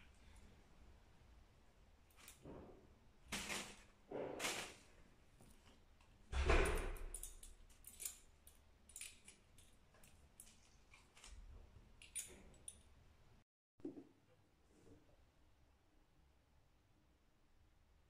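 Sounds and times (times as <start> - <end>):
bag bump: 3.3 - 4.9
plastic bag crinkling: 3.3 - 5.0.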